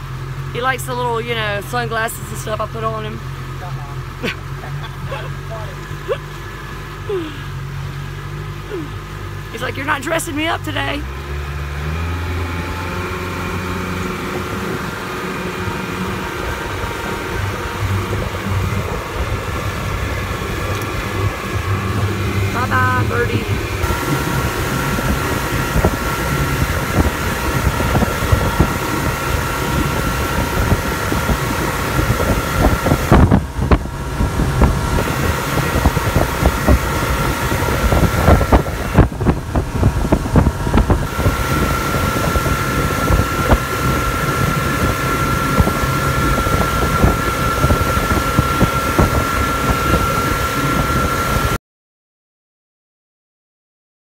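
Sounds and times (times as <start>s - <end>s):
outboard boat engine: 0.0s - 51.6s
high whine: 11.8s - 51.6s
wind buffeting microphone: 12.8s - 51.6s.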